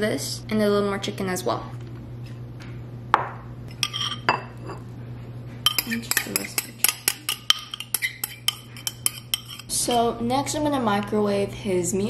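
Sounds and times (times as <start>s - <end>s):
spoon clinking against ceramic bowls: 3.7s - 4.8s, 5.6s - 9.7s.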